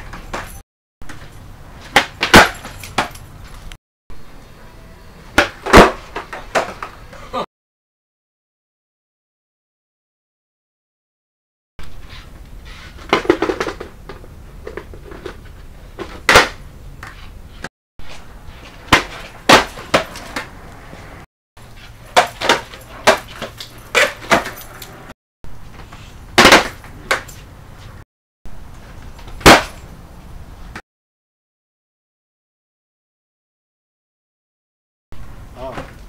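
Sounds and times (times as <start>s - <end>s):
skateboard smacking on concrete: 1.8s - 3.2s, 5.4s - 7.0s, 12.7s - 21.2s, 21.8s - 25.1s, 25.8s - 27.4s, 29.2s - 29.8s.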